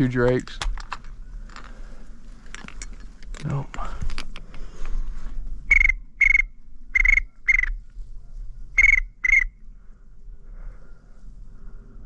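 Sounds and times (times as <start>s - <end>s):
duck whistle call: 5.7s - 7.8s, 8.8s - 9.5s.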